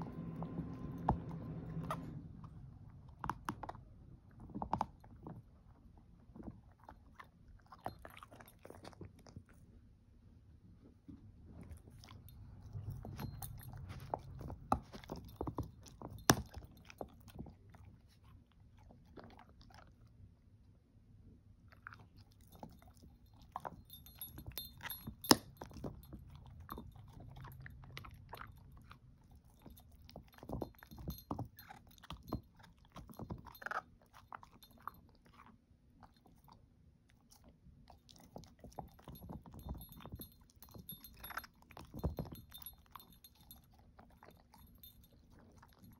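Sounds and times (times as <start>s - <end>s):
dog gnawing a chew treat: 3.0s - 9.7s, 11.6s - 20.2s, 21.7s - 45.9s.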